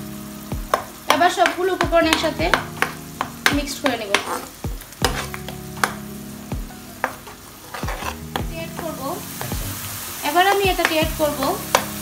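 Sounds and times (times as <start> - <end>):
spices sizzling in hot oil: 0.0 - 12.0
metal spoon scraping a pan: 2.1 - 6.1, 7.0 - 12.0.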